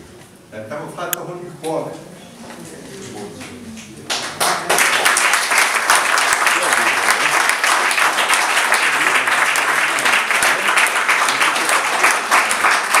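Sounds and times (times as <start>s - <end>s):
audience applauding: 4.1s - 13.0s.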